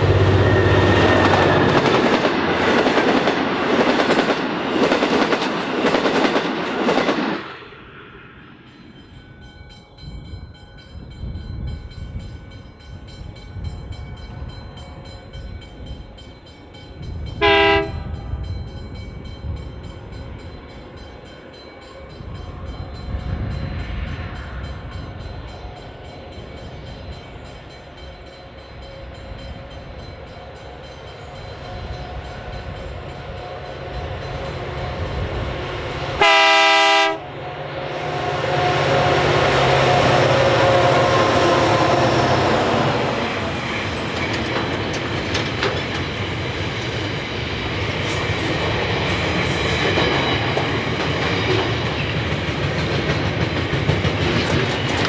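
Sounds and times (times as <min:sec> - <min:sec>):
diesel locomotive engines: 0:00.0 - 0:55.0
train horn blast: 0:17.4 - 0:18.2, 0:36.1 - 0:43.0
train wheel clicks: 0:43.7 - 0:47.1, 0:47.9 - 0:55.0.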